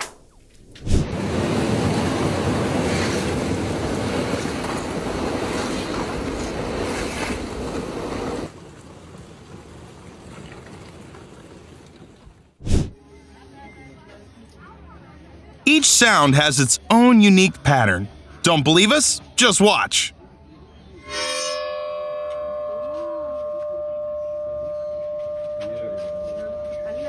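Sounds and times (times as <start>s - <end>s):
kayak crunching through ice: 2.4s - 8.5s.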